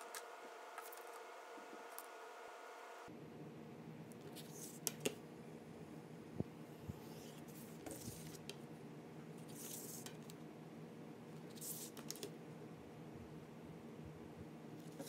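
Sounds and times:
faint steady hum: 0:00.0 - 0:15.0
ruler and paper sliding rustles: 0:07.1 - 0:08.5.

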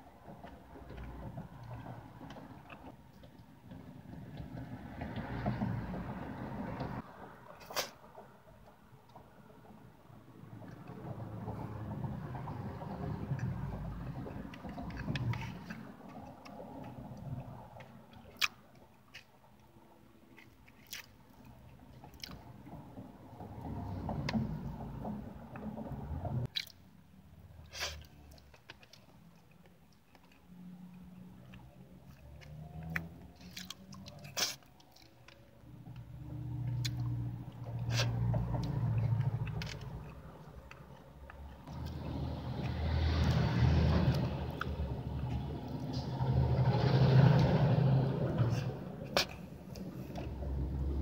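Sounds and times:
wet chewing and lip-smacking: 0:14.5 - 0:19.6, 0:20.4 - 0:22.4, 0:26.5 - 0:26.8, 0:31.5 - 0:35.4.

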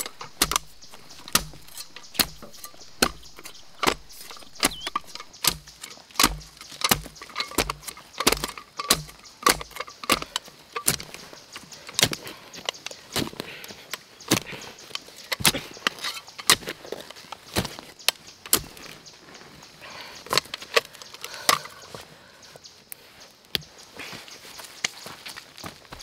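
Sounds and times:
shovel digging stony soil: 0:00.0 - 0:11.3, 0:11.9 - 0:13.5, 0:14.3 - 0:19.0.

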